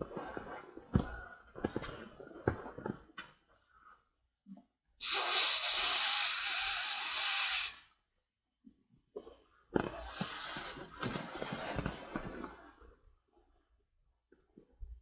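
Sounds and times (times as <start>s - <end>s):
breath blown into valve: 5.0s - 8.0s.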